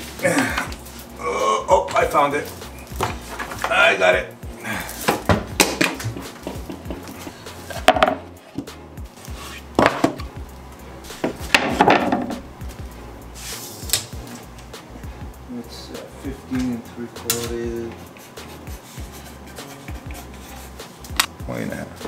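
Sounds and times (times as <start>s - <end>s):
wooden boards knocking and clattering: 7.8s - 8.3s, 9.8s - 10.2s, 11.2s - 12.5s.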